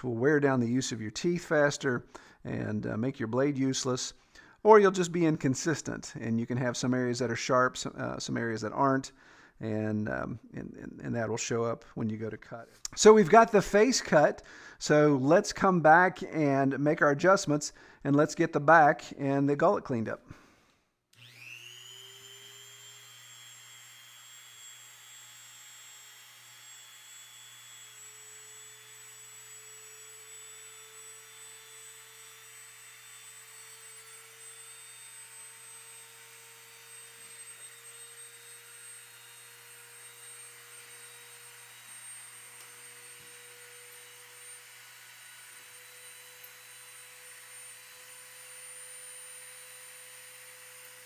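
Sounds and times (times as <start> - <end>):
blade sharpener grinding whine: 21.1 - 51.0.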